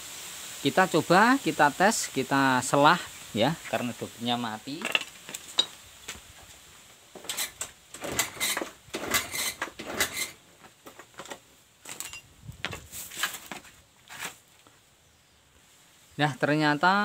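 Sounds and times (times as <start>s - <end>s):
scooter engine kick-start clatter: 7.3s - 10.4s.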